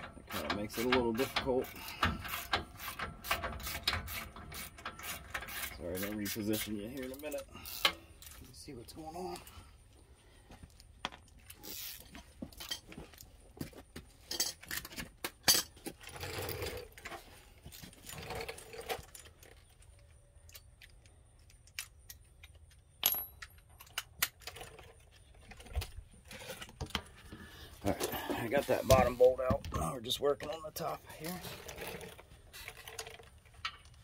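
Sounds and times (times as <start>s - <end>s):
tools rattling: 0.0s - 8.6s, 11.0s - 13.4s, 14.1s - 29.6s, 30.4s - 34.0s
hand tools clinking on metal: 0.0s - 9.6s, 14.2s - 15.8s, 30.3s - 32.0s.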